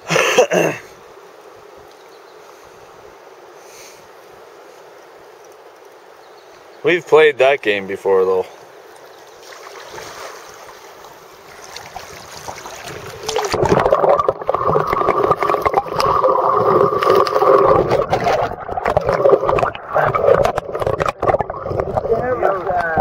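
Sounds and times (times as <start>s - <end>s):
river current rushing: 6.0s - 23.0s
small crackles: 11.0s - 23.0s
muffled underwater churning and bubbling: 11.8s - 23.0s.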